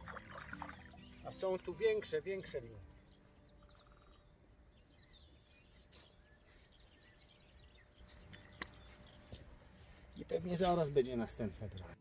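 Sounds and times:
faint outdoor ambience: 0.0s - 12.0s
quiet bird chirps: 0.1s - 12.0s.

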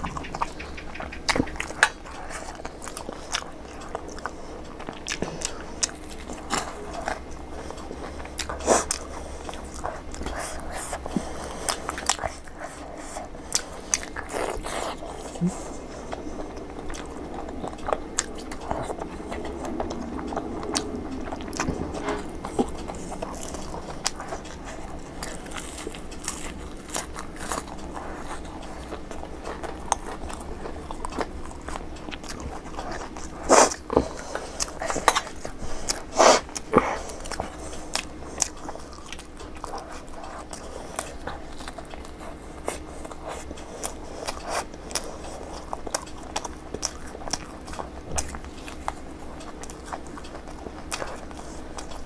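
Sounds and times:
chewing: 0.0s - 52.0s
crunching bites: 20.7s - 52.0s.

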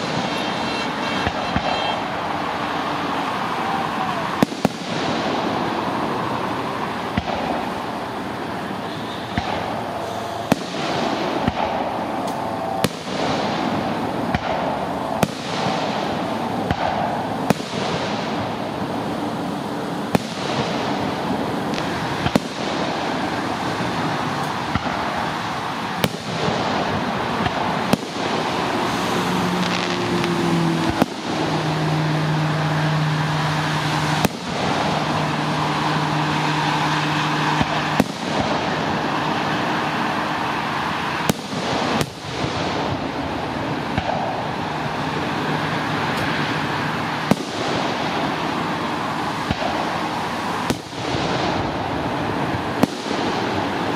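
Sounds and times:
fireworks bursting: 0.0s - 53.9s
steady background noise: 0.0s - 53.9s.

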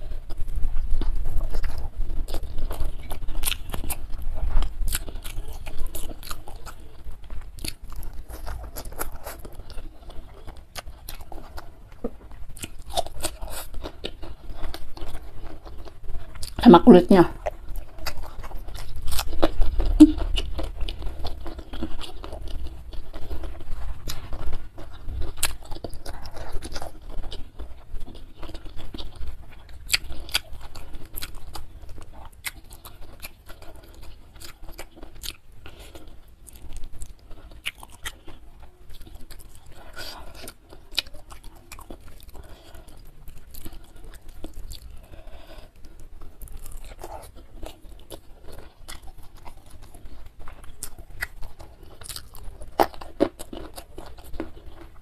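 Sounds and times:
chewing and crunching food: 0.0s - 55.0s
wet mouth clicks: 19.9s - 20.3s.

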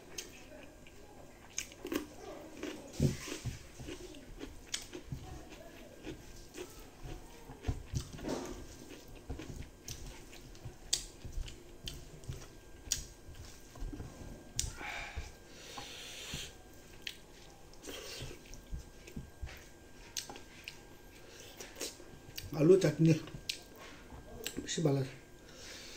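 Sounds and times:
mouth chewing with wet smacks: 0.1s - 14.0s, 16.4s - 20.8s.

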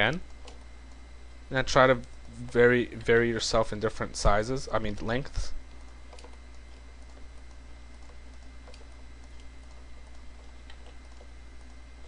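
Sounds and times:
low hum and hiss: 0.0s - 12.0s
mouse and keyboard clicks: 5.8s - 11.8s.

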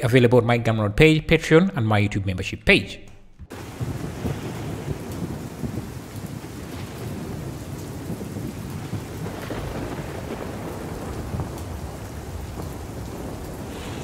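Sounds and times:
low thunder rumble: 3.4s - 14.0s
heavy rain: 3.5s - 14.0s.

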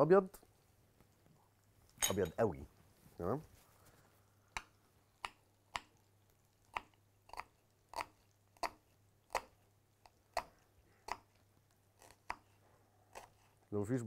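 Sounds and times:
knife cutting onion on board: 6.6s - 13.6s.

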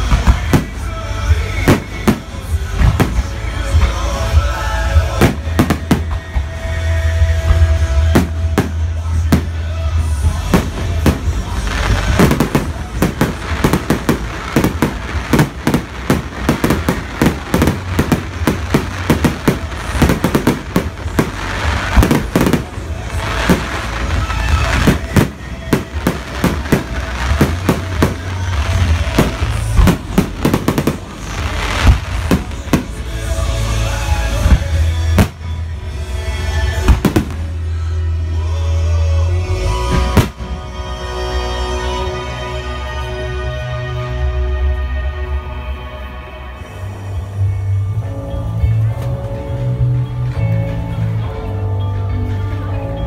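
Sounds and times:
fireworks bangs and crackles: 0.0s - 37.7s, 39.9s - 40.8s
music playing: 0.0s - 53.0s.

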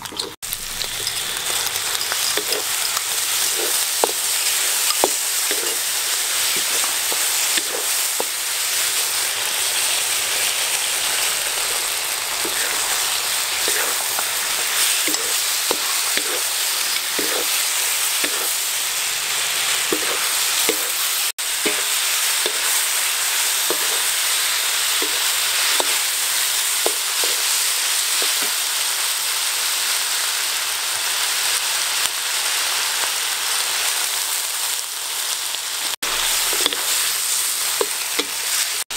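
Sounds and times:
food sizzling in a wok: 0.0s - 38.9s
wooden spatula scraping a pan: 1.6s - 8.4s, 11.5s - 18.6s, 19.8s - 22.8s, 23.7s - 24.1s.

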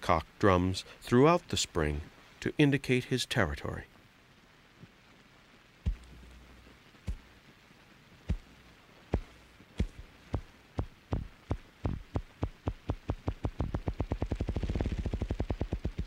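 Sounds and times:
grouse drumming wings: 9.1s - 16.0s.

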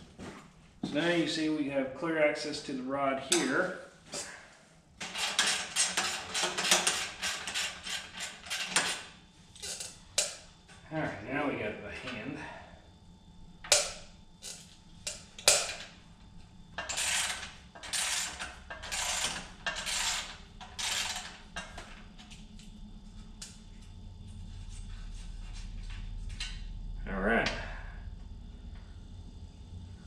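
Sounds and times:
hand tool rasping on metal: 5.0s - 8.8s, 16.8s - 21.4s.

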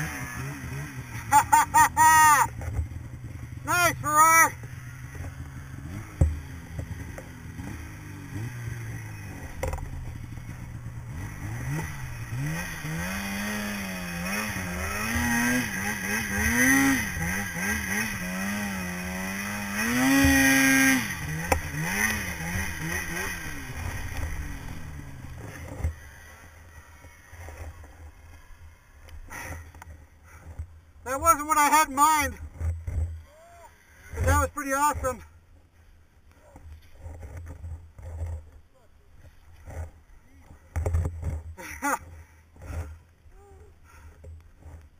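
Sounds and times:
snowmobile engine revving: 0.0s - 35.3s.

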